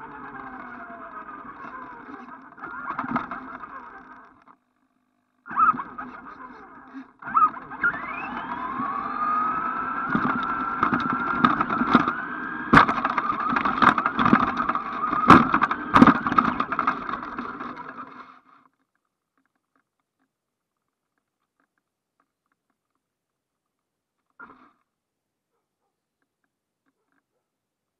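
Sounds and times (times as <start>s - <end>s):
toy truck electric motor whine: 0.0s - 4.6s, 5.5s - 18.6s
truck knocks and rattles: 10.1s - 18.1s.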